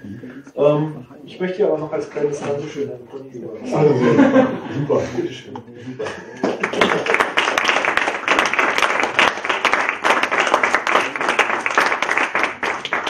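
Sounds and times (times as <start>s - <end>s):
audience applauding: 6.3s - 13.0s.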